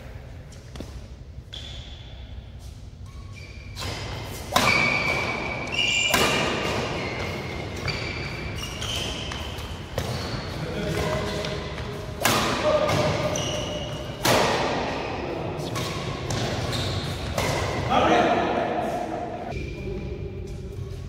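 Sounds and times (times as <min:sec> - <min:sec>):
sneakers squeaking on court: 0:03.0 - 0:17.8
rackets hitting shuttlecock: 0:03.8 - 0:08.0, 0:08.6 - 0:15.0, 0:15.6 - 0:17.9.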